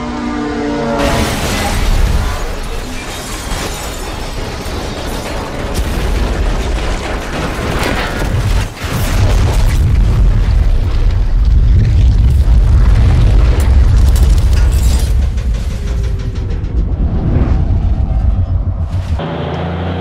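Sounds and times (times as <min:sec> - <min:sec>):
crunching metal: 0:01.0 - 0:16.9
debris hits: 0:01.0 - 0:16.9
heavy crash: 0:01.0 - 0:19.2
deep booming: 0:09.0 - 0:19.2.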